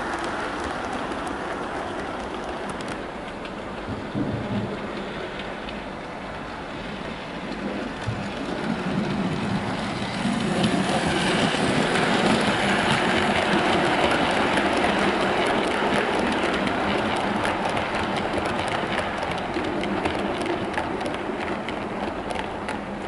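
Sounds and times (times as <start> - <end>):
model train running on track: 0.0 - 23.0
wheels clicking over rail joints: 0.0 - 23.0.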